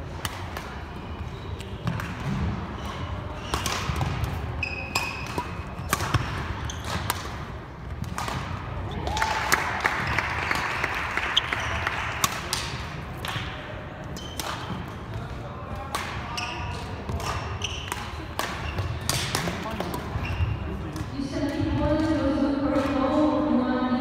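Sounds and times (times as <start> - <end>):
shoes squeaking on court: 1.0 - 7.1, 10.0 - 12.0, 14.0 - 15.2, 16.3 - 20.9
rackets striking shuttlecocks: 1.6 - 9.0, 10.0 - 21.8.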